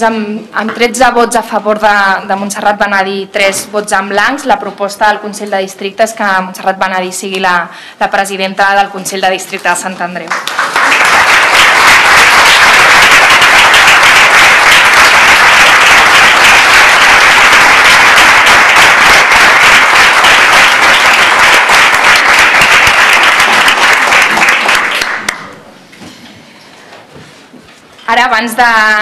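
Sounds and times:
crowd applauding: 0:10.3 - 0:25.6.

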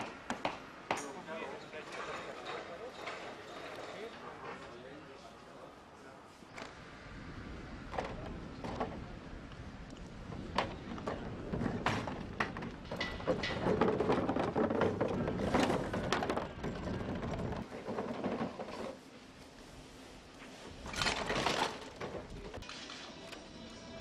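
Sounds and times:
plastic bins rattling and scraping: 0:11.1 - 0:19.0, 0:20.8 - 0:22.7.

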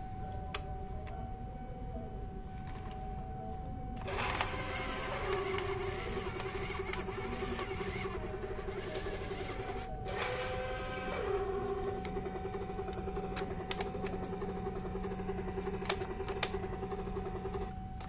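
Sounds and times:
toy helicopter motor whirring: 0:04.0 - 0:15.8.

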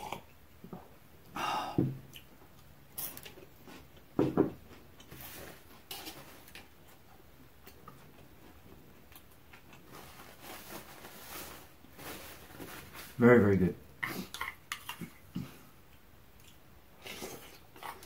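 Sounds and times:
person chewing: 0:02.0 - 0:10.0, 0:14.0 - 0:18.0
paper napkin rustling: 0:09.9 - 0:13.5.

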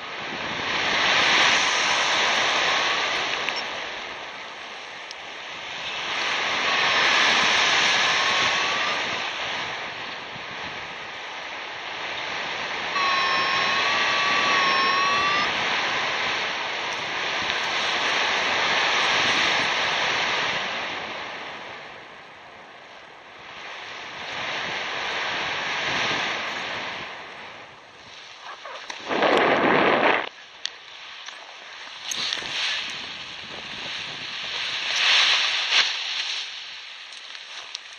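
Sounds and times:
wind rushing over microphone: 0:00.0 - 0:37.9
wavering whistle-like tone: 0:01.6 - 0:03.8, 0:06.0 - 0:09.4, 0:12.9 - 0:16.2.

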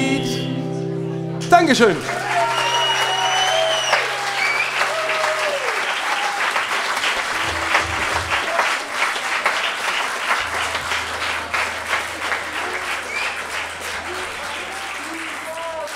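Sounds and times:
crowd applauding: 0:02.0 - 0:15.9
low steady hum: 0:07.2 - 0:08.7, 0:10.4 - 0:15.9.

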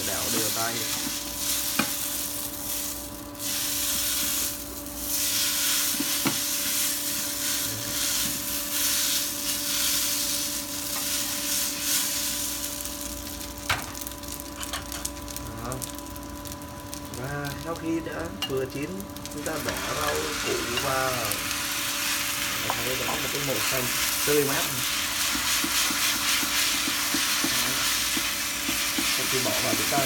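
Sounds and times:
food sizzling in oil: 0:00.0 - 0:30.0
steady multi-tone hum: 0:00.0 - 0:30.0
wooden spatula stirring food: 0:24.8 - 0:30.0
spatula tapping pan: 0:25.2 - 0:30.0.

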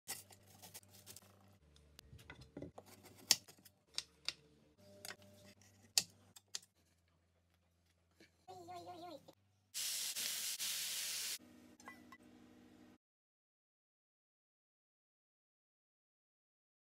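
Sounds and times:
vegetables sizzling in a wok: 0:09.8 - 0:11.4.

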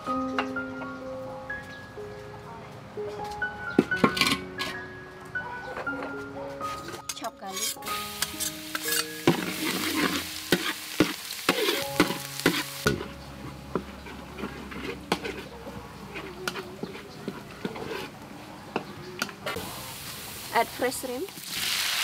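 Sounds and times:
metal spatula scraping a wok: 0:07.0 - 0:18.2
garlic sizzling in hot oil: 0:07.5 - 0:13.0, 0:19.6 - 0:22.0.

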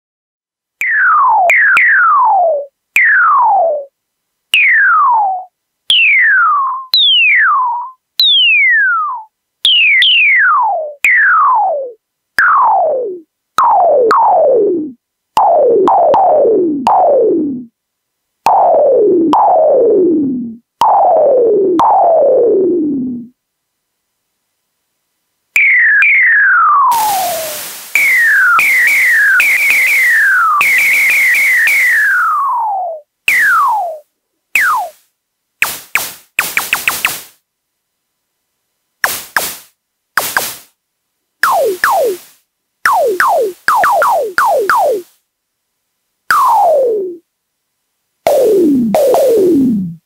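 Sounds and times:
electronic drum hits: 0:26.9 - 0:32.2, 0:35.6 - 0:37.4, 0:39.0 - 0:40.7, 0:41.4 - 0:45.1, 0:48.3 - 0:50.0.

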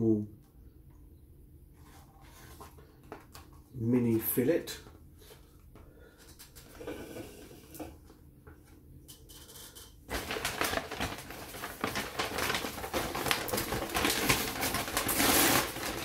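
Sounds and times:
paper bag rustling: 0:10.1 - 0:16.0.

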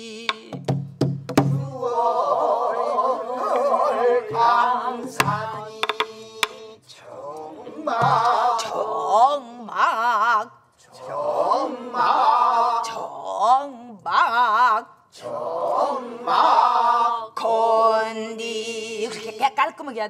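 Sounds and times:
voices singing with vibrato: 0:01.5 - 0:19.6.

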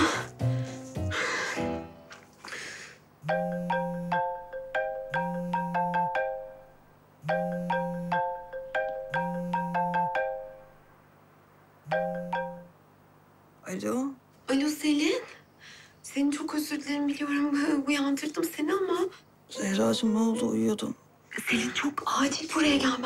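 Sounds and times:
marimba-like phone ringtone: 0:03.2 - 0:06.6, 0:07.3 - 0:10.7, 0:11.9 - 0:12.7.

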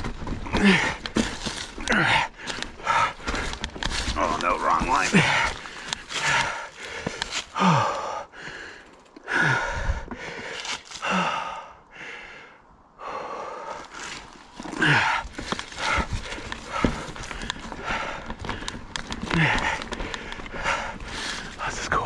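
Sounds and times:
bike clattering over rocks: 0:00.0 - 0:07.8, 0:13.9 - 0:22.0
person breathing hard: 0:00.5 - 0:22.0.

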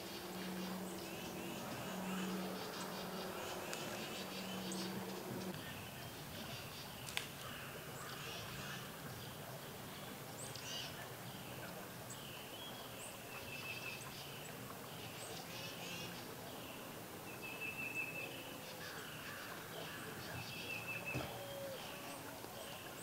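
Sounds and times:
bird trill: 0:00.0 - 0:05.5
faint outdoor background noise: 0:00.0 - 0:23.0
small birds chirping: 0:00.0 - 0:23.0.

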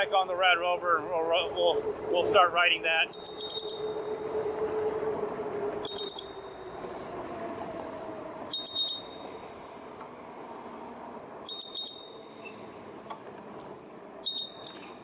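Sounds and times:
bicycle bell ringing: 0:03.1 - 0:04.1, 0:05.8 - 0:06.6, 0:08.5 - 0:09.5, 0:11.4 - 0:12.7, 0:14.2 - 0:15.0.

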